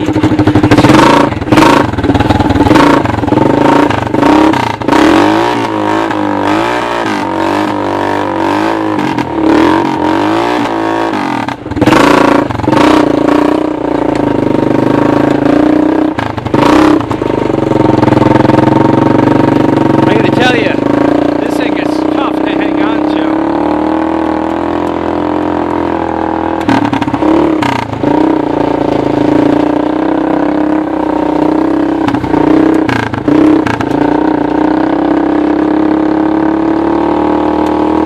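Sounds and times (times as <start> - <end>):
loud engine bursts: 0.0 - 13.6
single-cylinder engine revving: 0.0 - 38.0.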